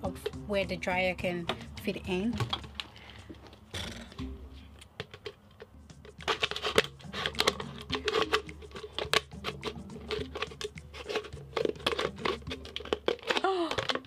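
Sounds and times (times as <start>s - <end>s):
plastic crackling and snapping: 2.4s - 4.2s, 4.8s - 14.0s
scissors cutting plastic bottle: 5.0s - 14.0s.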